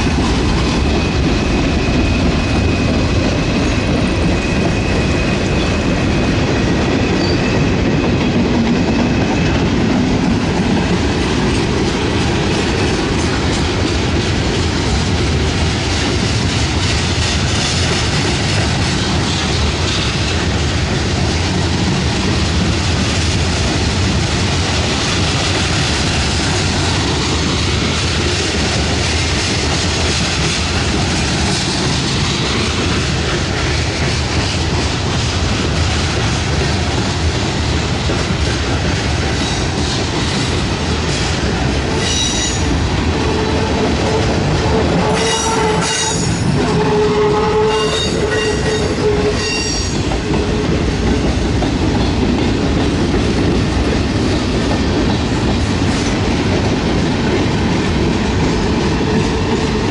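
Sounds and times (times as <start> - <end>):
freight train wheels rumbling: 0.0 - 59.9
train wheels squealing: 0.9 - 9.6, 42.0 - 44.3, 45.1 - 50.1.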